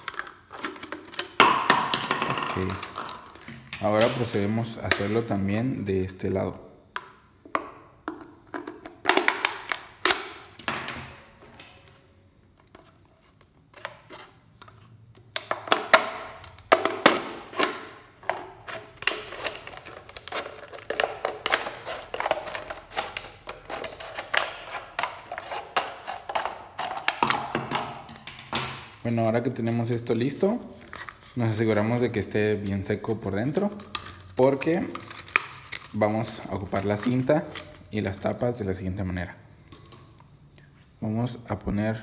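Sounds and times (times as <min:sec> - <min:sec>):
plastic crackling: 0:00.0 - 0:05.2, 0:12.6 - 0:38.3.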